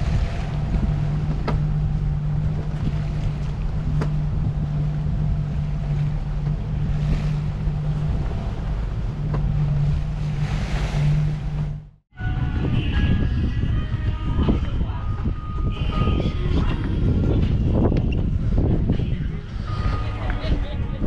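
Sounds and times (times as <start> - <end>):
water washing along hull: 0.0 - 12.0
steady low hum: 0.0 - 21.0
wind buffeting microphone: 0.0 - 21.0.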